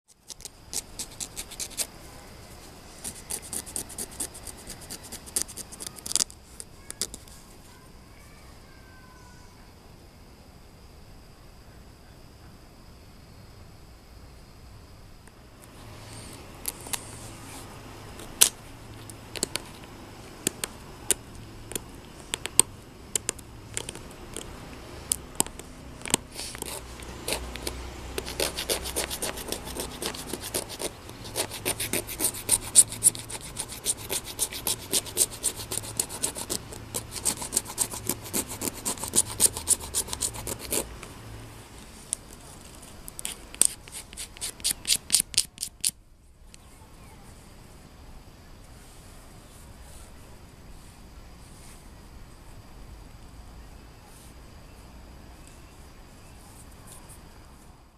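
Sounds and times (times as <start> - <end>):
flint scraping bone: 0.2 - 1.9, 3.0 - 6.4, 23.2 - 40.9, 42.6 - 45.9.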